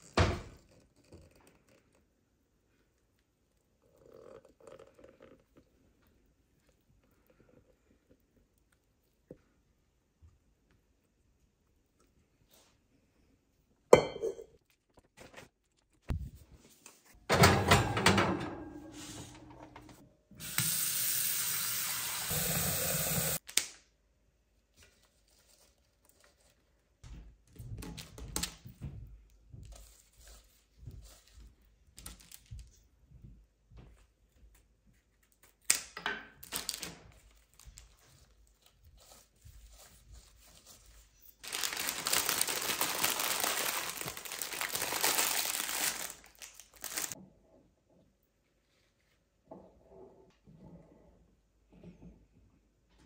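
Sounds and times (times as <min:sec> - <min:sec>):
water running from tap: 0:20.4 - 0:23.4
cellophane rustling: 0:36.4 - 0:38.7, 0:41.3 - 0:47.2.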